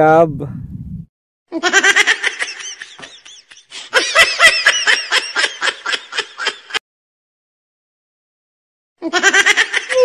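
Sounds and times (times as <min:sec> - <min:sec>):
high-pitched laughter: 0:01.5 - 0:06.8, 0:09.0 - 0:10.0.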